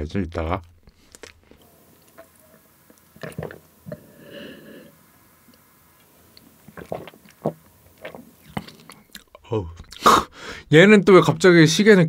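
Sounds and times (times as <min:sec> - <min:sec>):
person swallowing: 0:03.1 - 0:04.1, 0:06.6 - 0:10.4
lip smacks and mouth clicks: 0:06.4 - 0:10.1.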